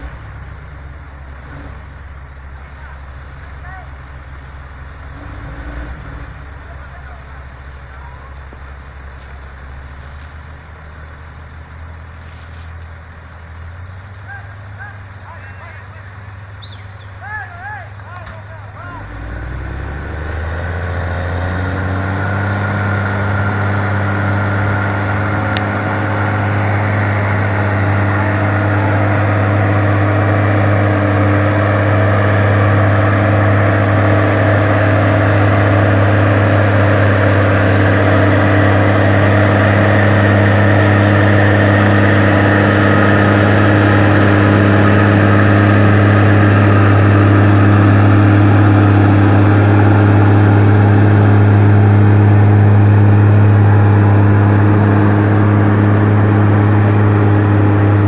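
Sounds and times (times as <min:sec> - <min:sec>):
heavy diesel engine under load: 0:00.0 - 0:58.0.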